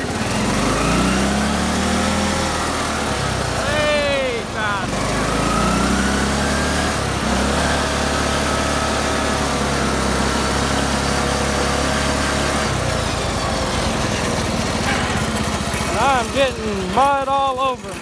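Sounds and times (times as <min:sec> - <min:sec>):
lawn tractor engine running: 0:00.0 - 0:18.0.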